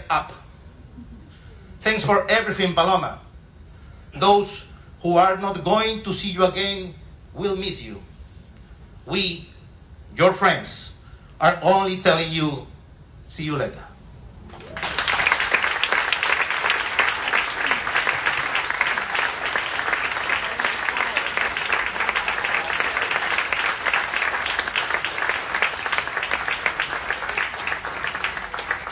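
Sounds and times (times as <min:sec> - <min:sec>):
audience applauding: 0:14.5 - 0:28.9.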